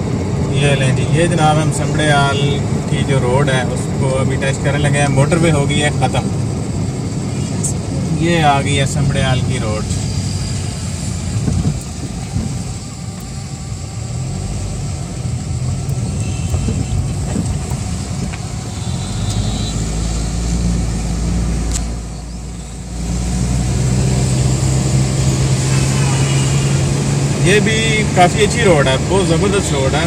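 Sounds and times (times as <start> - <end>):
car engine and tyre rumble: 0.0 - 30.0.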